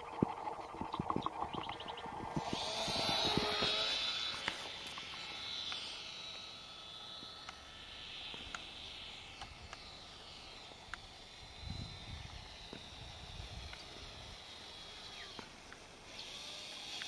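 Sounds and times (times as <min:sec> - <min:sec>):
model plane motor whining: 0:00.0 - 0:17.0
faint ticks: 0:08.3 - 0:08.8, 0:10.8 - 0:11.1, 0:15.2 - 0:15.9.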